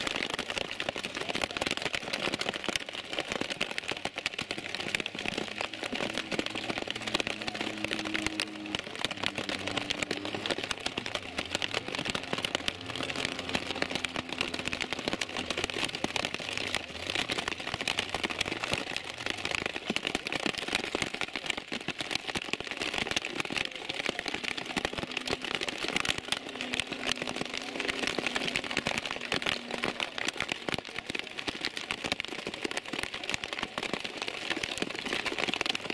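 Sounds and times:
heavy rain: 0.0s - 35.9s
distant race car engines: 5.8s - 16.4s.

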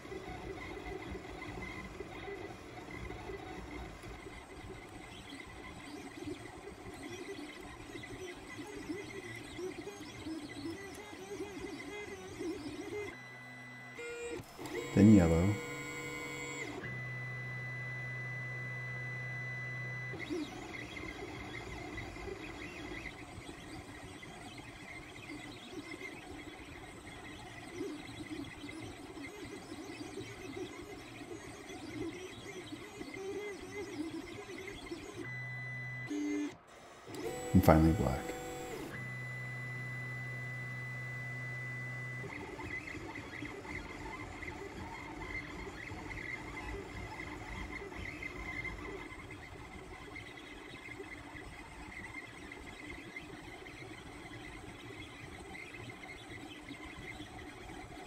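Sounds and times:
stepper motors humming and whining: 0.0s - 25.8s, 29.8s - 49.2s.

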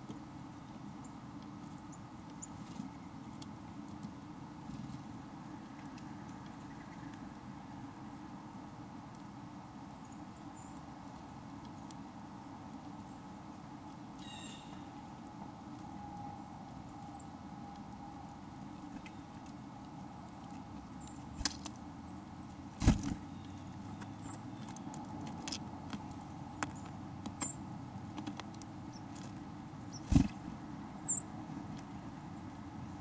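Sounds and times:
birds pecking and scratching: 0.0s - 9.4s, 10.1s - 33.0s
low background hum: 0.0s - 33.0s.

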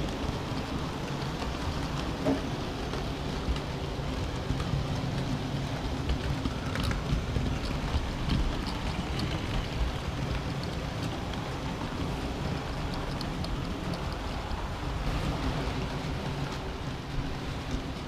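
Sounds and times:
wheels clicking over rail joints: 0.0s - 18.0s
wheels rattling on rail: 0.0s - 18.0s.

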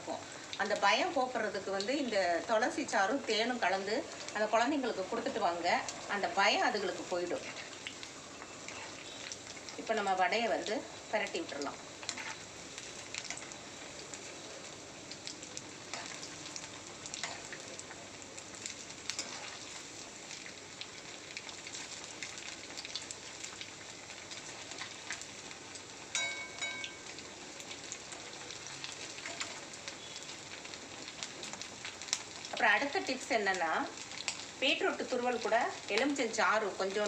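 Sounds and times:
food deep-frying in hot oil: 0.0s - 37.0s
ringing note: 26.2s - 27.1s.

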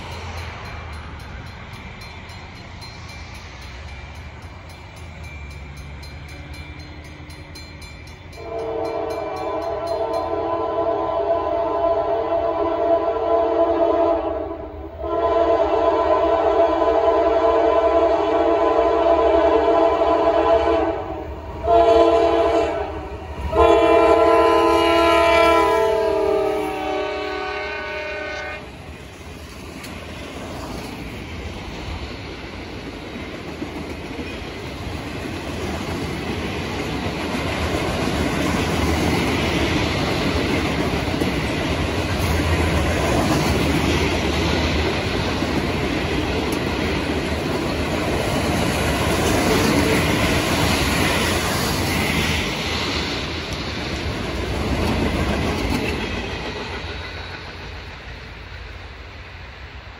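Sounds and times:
freight train rumble: 0.0s - 59.9s
locomotive air horn: 8.4s - 28.7s.

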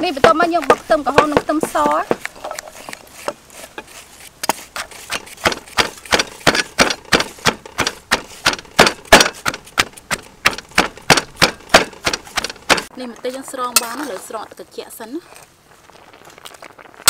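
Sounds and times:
wooden pestle pounding in mortar: 0.0s - 3.4s, 4.4s - 12.9s.

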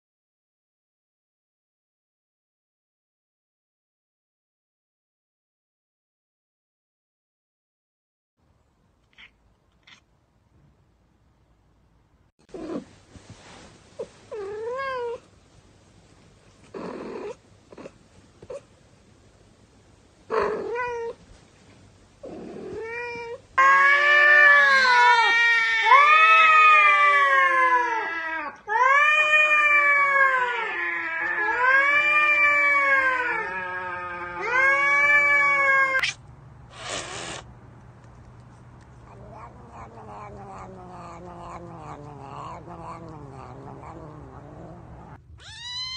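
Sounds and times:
cats meowing: 9.0s - 10.0s, 22.6s - 36.2s, 39.1s - 45.9s
cat yowling in long wails: 23.2s - 36.1s, 39.1s - 45.9s.

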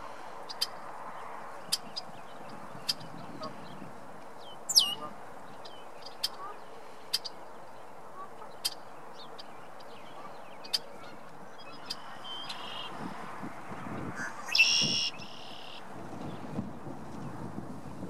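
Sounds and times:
bird buzzy trill song: 1.5s - 7.8s, 8.4s - 13.0s, 13.9s - 16.6s
bird call notes: 4.4s - 5.2s, 14.2s - 15.8s.

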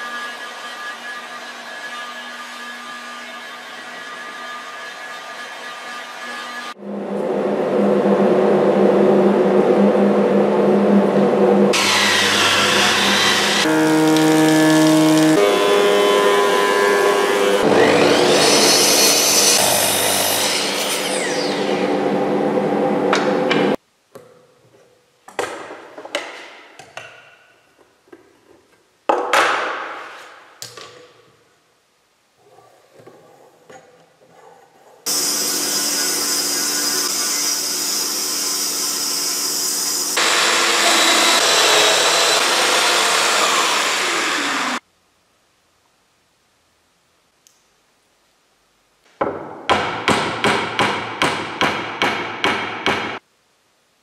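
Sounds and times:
mitre saw cutting wood: 11.7s - 22.2s, 35.1s - 44.8s
power tool running: 11.7s - 23.8s, 35.1s - 44.8s.

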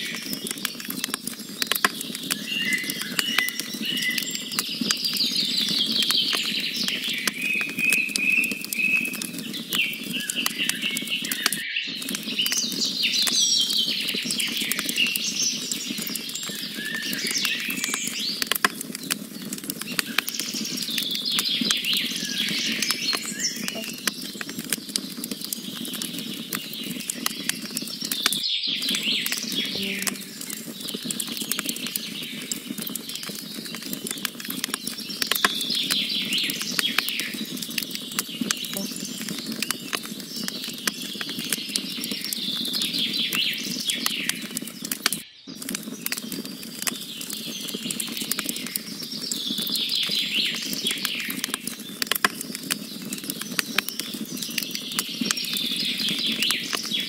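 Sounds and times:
wood fire crackling: 0.0s - 57.0s
birds chirping and singing: 28.8s - 31.0s.

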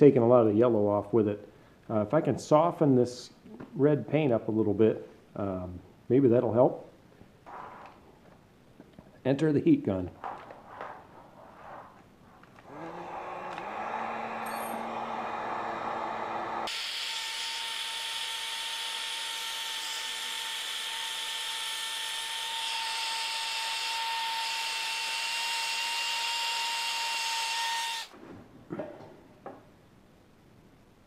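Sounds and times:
heat gun fan whine and hiss: 12.7s - 28.2s.

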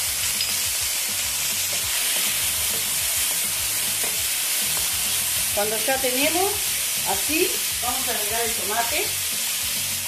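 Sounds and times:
meat and onion sizzling in pan: 0.0s - 10.0s.

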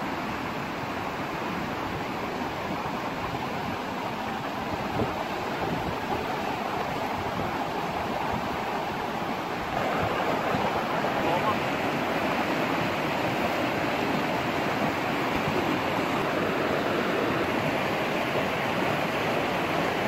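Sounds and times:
fast-flowing stream rushing: 0.0s - 20.0s.

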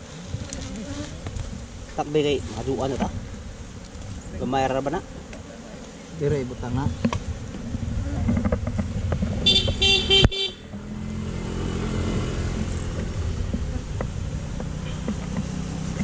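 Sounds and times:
motorcycle engine running: 7.9s - 16.0s
motorcycle horn tooting: 9.4s - 10.7s, 14.8s - 15.2s.

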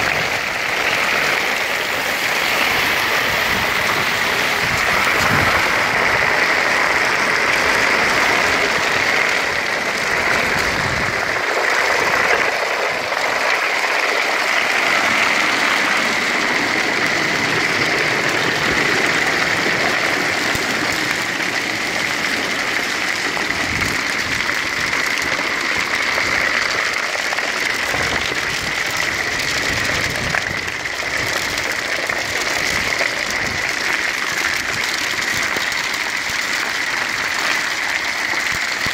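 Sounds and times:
gravel rattling through suction pipe: 0.0s - 38.9s.

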